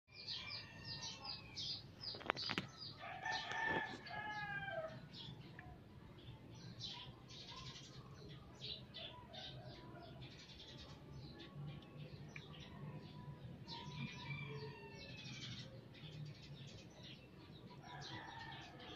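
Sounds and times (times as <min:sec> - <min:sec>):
small birds chirping: 0:00.1 - 0:18.9
rooster crowing: 0:03.0 - 0:05.0.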